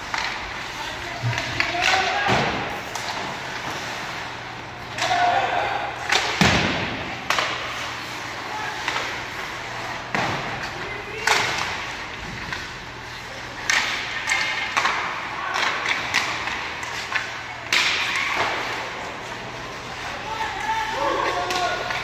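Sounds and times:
skate blades scraping ice: 0.0 - 5.7
hockey sticks and puck knocks: 0.0 - 22.0
players calling out: 0.2 - 22.0.

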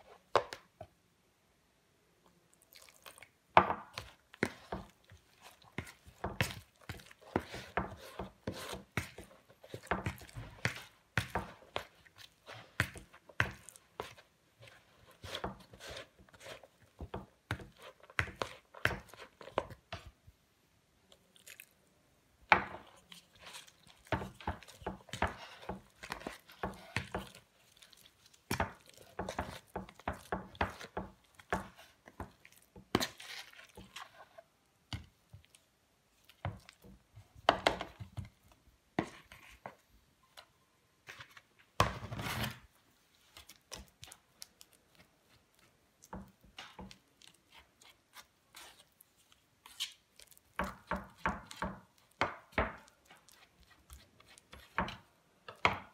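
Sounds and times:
putty knife scraping clay: 3.8 - 20.1, 22.6 - 35.1, 40.4 - 42.7, 43.3 - 55.9.

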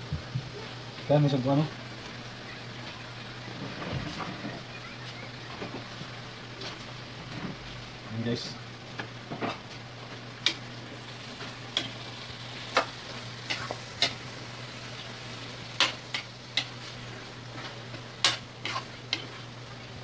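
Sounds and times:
food sizzling: 0.0 - 20.0
metal spatula scraping frying pan: 18.2 - 19.4.

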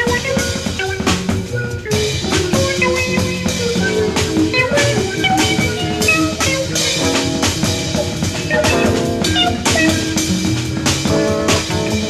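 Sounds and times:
drum kit strokes: 0.0 - 12.0
jazz ensemble playing: 0.0 - 12.0.

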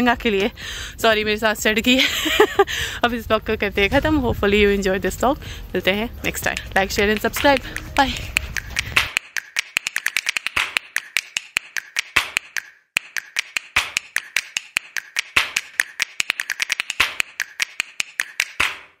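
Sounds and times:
rapid sharp clicks: 6.5 - 19.0.

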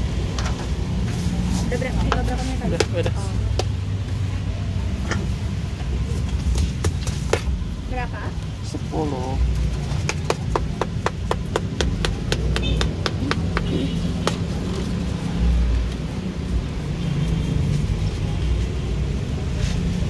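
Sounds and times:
low rumble of street traffic: 0.0 - 20.0
knife chopping on cutting board: 10.1 - 14.5.

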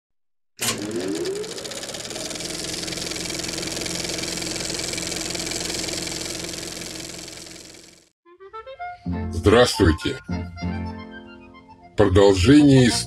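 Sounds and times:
projector hum: 0.6 - 8.0
film projector clatter: 0.6 - 8.1.

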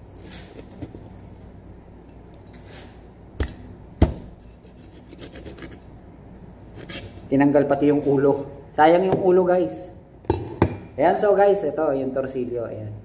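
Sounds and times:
knife scraping fish: 4.4 - 5.8, 6.7 - 7.3.

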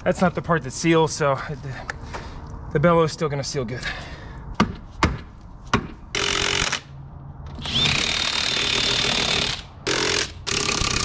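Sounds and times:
impact driver whining: 6.1 - 6.9, 7.5 - 11.0.

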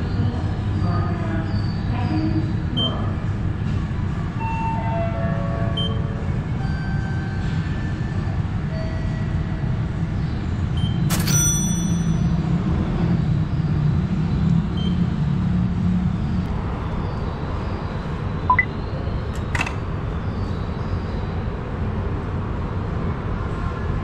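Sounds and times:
station concourse rumble: 0.0 - 24.0
short electronic beep: 18.5 - 18.7.

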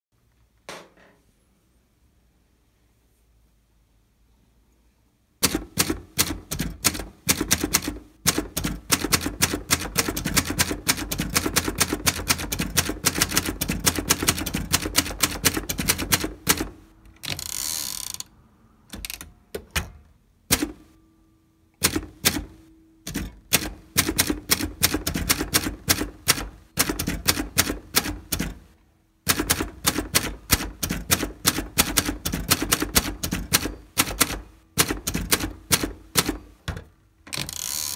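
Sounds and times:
typewriter key strikes: 5.4 - 17.4, 21.8 - 28.6, 29.3 - 36.6
typewriter carriage return: 5.4 - 18.2, 18.9 - 20.9, 21.8 - 28.6, 29.3 - 37.9.

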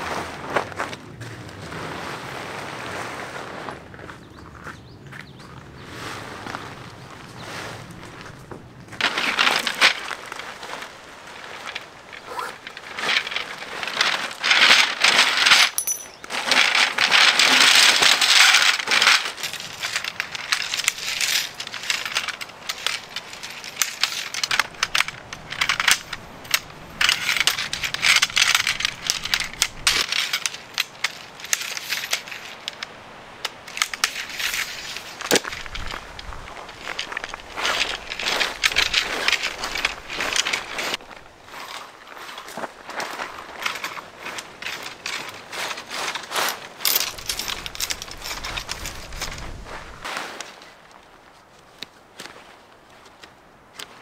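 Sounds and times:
nylon fabric rustling: 9.0 - 32.7
sharp clicks and clatters: 11.6 - 36.0.

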